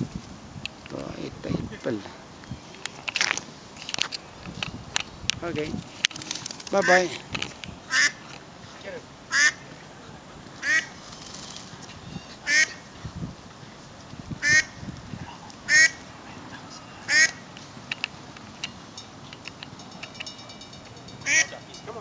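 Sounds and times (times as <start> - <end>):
duck quacking: 7.9 - 8.2, 9.3 - 9.6, 12.4 - 12.8, 15.7 - 16.0, 17.1 - 17.4, 21.3 - 22.0.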